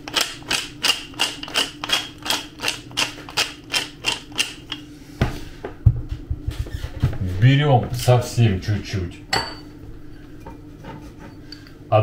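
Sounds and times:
pepper mill grinding clicks: 0:00.0 - 0:04.8
knock and dull thumps: 0:05.2 - 0:07.2.

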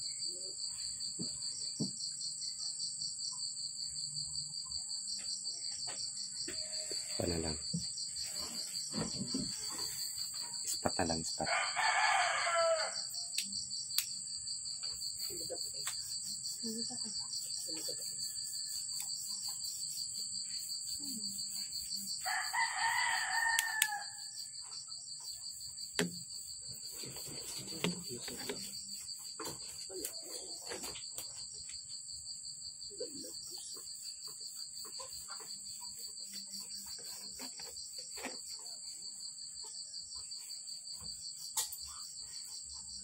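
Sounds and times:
insect trilling: 0:06.4 - 0:14.2, 0:14.8 - 0:31.3
rooster crowing: 0:11.4 - 0:13.1, 0:22.2 - 0:24.5.

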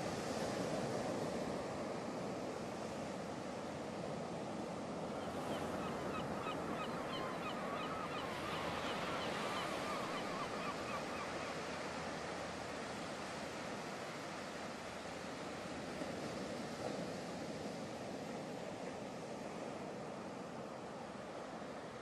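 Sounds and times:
wind: 0:00.0 - 0:22.0.

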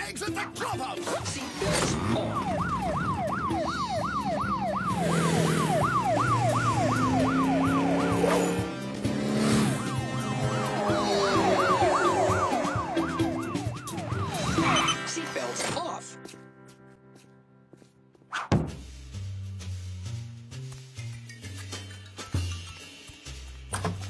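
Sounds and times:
background music: 0:00.0 - 0:24.0
cartoon police siren yelping: 0:01.8 - 0:08.8, 0:10.4 - 0:15.1.

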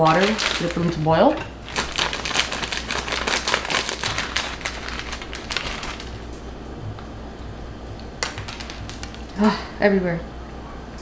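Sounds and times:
plastic wrapper crinkling: 0:00.0 - 0:06.4, 0:08.2 - 0:09.4.

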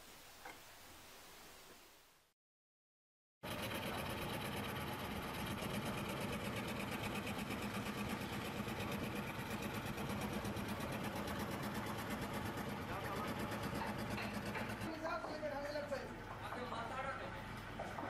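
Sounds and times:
scroll saw cutting wood: 0:03.5 - 0:14.9.

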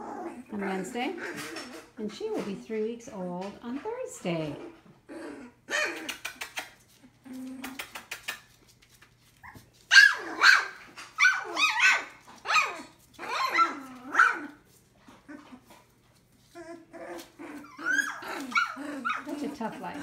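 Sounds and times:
puppies yipping and barking: 0:00.0 - 0:02.0, 0:09.3 - 0:20.0.

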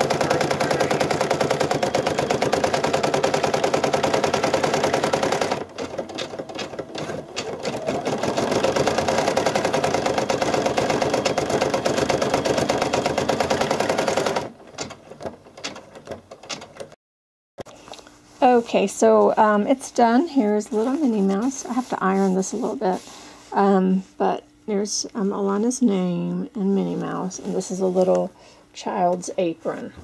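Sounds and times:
embroidery machine stitching: 0:00.0 - 0:16.9.

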